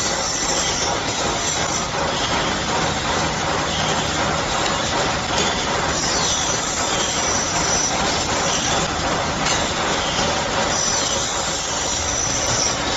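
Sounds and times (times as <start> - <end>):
saw blade screeching: 0.0 - 1.6, 5.9 - 8.8, 10.0 - 12.9
circular saw cutting metal: 0.0 - 12.9.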